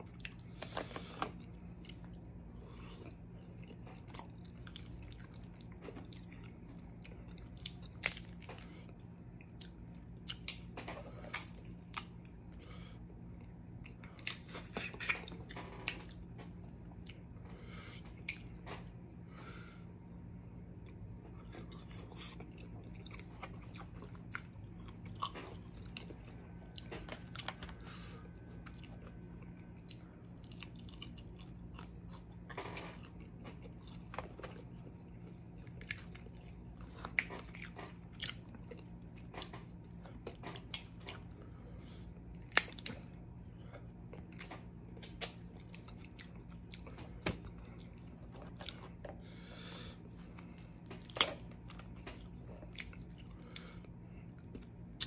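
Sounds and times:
chewing and biting: 0.0 - 19.0, 20.8 - 55.0.

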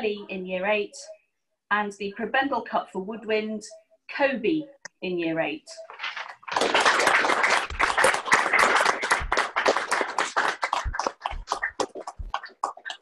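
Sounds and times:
hands clapping: 6.0 - 13.0.

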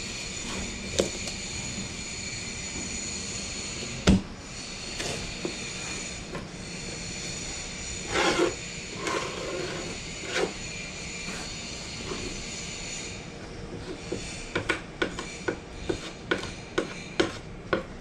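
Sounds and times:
background hum: 0.0 - 18.0
putty knife scraping: 8.0 - 10.6.

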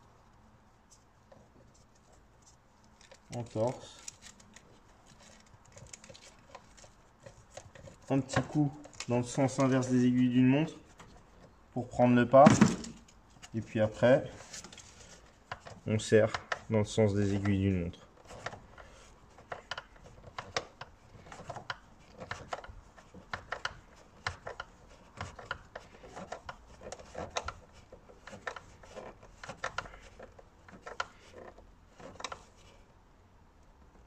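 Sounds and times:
screwdriver clicks and scraping: 18.2 - 32.5.

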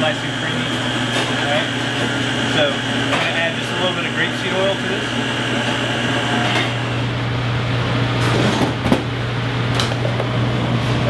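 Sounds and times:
blender running: 0.0 - 7.1.

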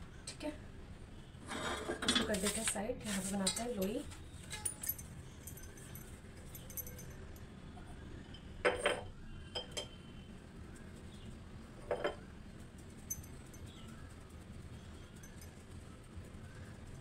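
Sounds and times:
kitchenware clinking on a counter: 1.6 - 2.5, 3.2 - 5.0, 8.3 - 10.0, 11.8 - 12.3.

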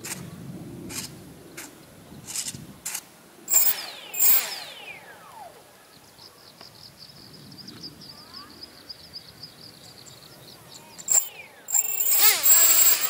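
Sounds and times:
servo buzzes: 3.5 - 5.6, 11.1 - 13.0
rc motor throttle whine: 3.5 - 5.7, 11.1 - 13.0.

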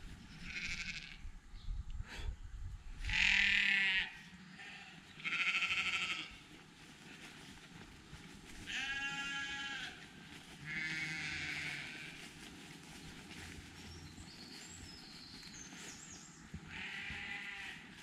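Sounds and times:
livestock bleating: 0.3 - 1.2, 3.0 - 6.5, 8.6 - 10.0, 10.6 - 12.2, 16.7 - 18.0.

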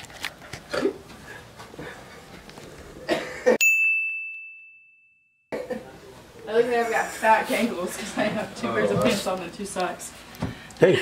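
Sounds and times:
high bell-like ding: 3.6 - 5.5.

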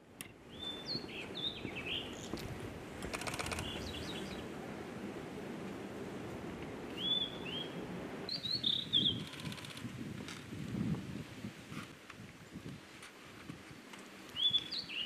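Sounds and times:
bird whistled song: 0.5 - 2.3, 7.0 - 9.3, 14.4 - 15.0
bird rattle: 3.1 - 3.8.

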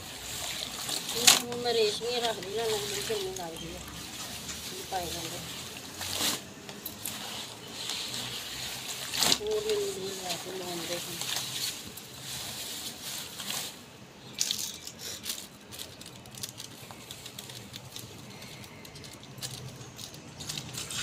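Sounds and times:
wet clothes squishing in water: 0.1 - 13.9
plastic packet crinkling: 0.2 - 21.0.

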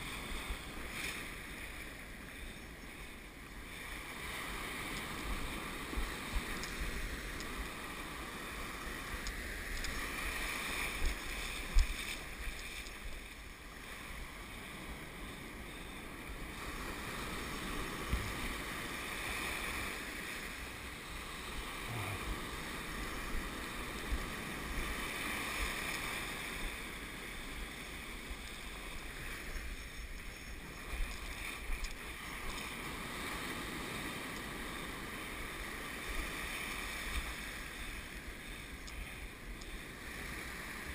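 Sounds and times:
ocean surf breaking: 0.0 - 40.9.

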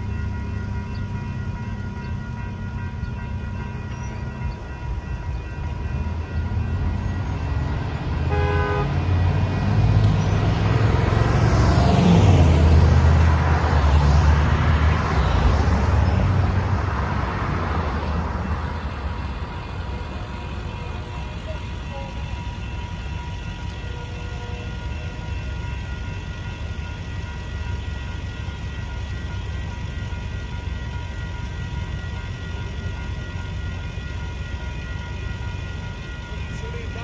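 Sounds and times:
railroad crossing bells ringing: 0.0 - 37.0
horn toot: 8.3 - 9.0.

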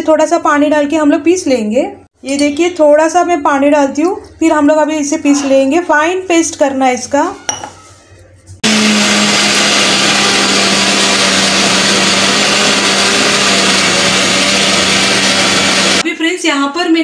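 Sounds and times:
mixer grinder grinding paste: 8.6 - 16.0.

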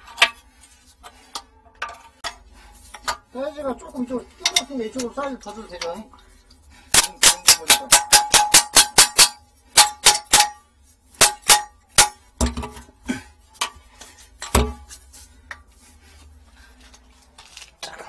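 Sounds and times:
metal tool striking pipe fitting: 6.9 - 10.6, 11.2 - 12.9, 14.4 - 15.0.

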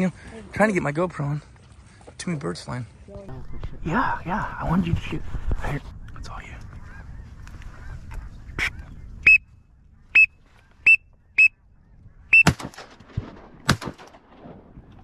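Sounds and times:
shotgun shot with echo: 12.4 - 14.6.

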